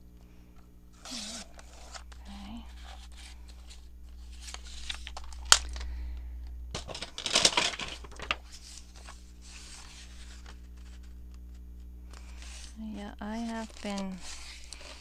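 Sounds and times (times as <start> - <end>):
paper rustling and crinkling: 0.9 - 5.9, 6.8 - 15.0.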